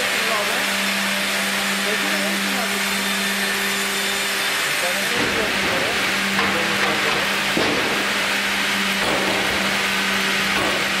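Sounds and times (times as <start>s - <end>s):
band saw motor hum: 0.0s - 11.0s
knock: 9.0s - 9.7s.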